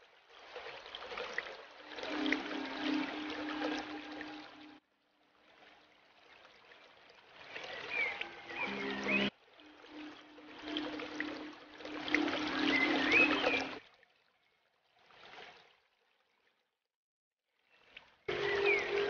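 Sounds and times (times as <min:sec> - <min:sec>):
water trickling: 0:00.0 - 0:16.8, 0:17.6 - 0:19.0
pump hum: 0:01.8 - 0:04.8, 0:07.9 - 0:13.8.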